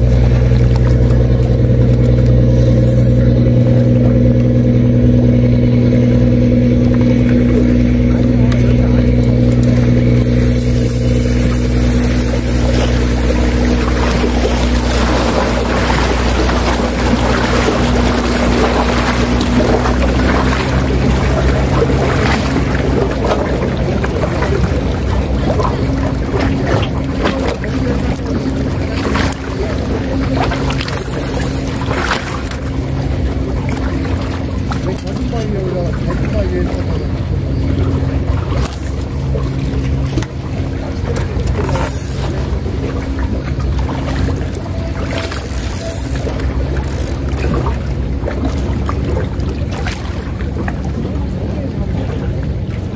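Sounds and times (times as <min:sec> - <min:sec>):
low engine drone: 0:00.0 - 0:52.9
waves: 0:00.0 - 0:52.9
wind: 0:00.0 - 0:52.9.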